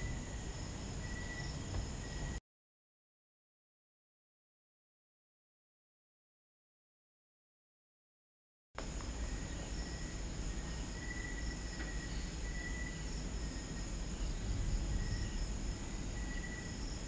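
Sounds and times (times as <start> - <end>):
crickets chirping: 0.0 - 2.4, 8.8 - 17.0
low background rumble: 8.8 - 17.0.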